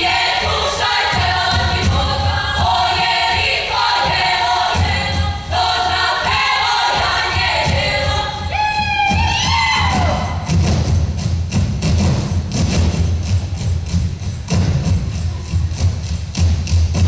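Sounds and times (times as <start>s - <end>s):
group singing folk song: 0.0s - 10.4s
low rhythmic thuds: 0.0s - 17.0s.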